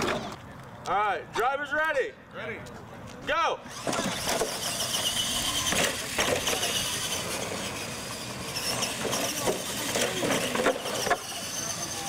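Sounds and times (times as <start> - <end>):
tyres on artificial turf: 0.0 - 12.0
electric motors whining: 3.7 - 12.0.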